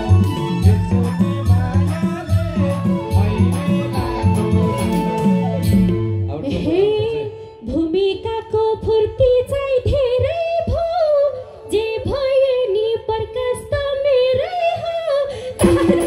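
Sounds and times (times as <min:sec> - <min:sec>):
woman singing folk song: 0:06.5 - 0:16.0.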